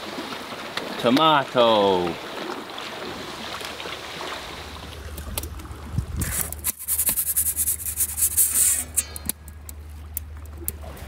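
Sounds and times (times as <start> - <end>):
metal pizza peel scraping: 6.2 - 9.3.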